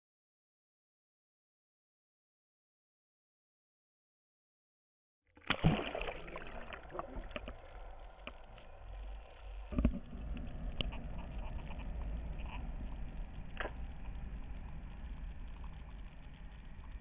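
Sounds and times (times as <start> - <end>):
underwater bubbling: 5.4 - 17.0
water wash: 5.4 - 17.0
steady low rumble: 6.0 - 17.0
sharp knock underwater: 9.7 - 10.2.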